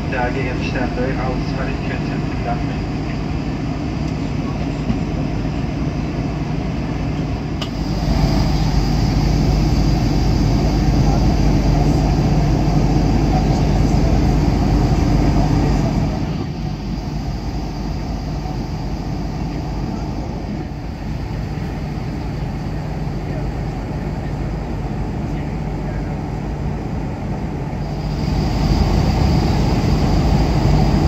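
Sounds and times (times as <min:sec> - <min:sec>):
jet engines droning: 0:00.0 - 0:31.0
rushing air: 0:07.7 - 0:23.9, 0:26.4 - 0:31.0.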